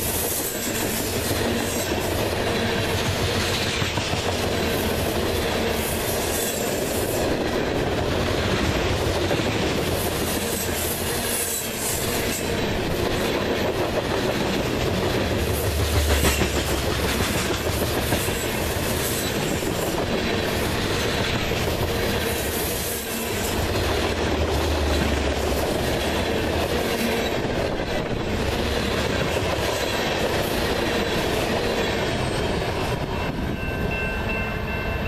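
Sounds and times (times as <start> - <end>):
train wheels rolling over rails: 0.0 - 34.0
high ringing tones: 33.0 - 35.0.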